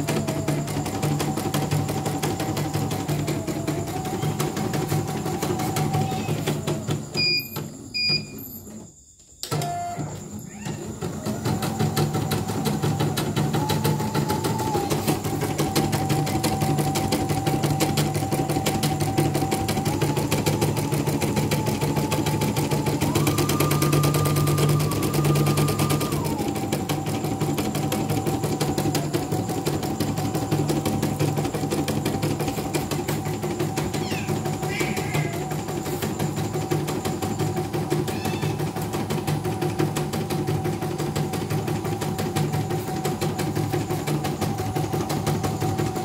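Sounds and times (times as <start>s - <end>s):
embroidery machine stitching: 0.0s - 46.0s.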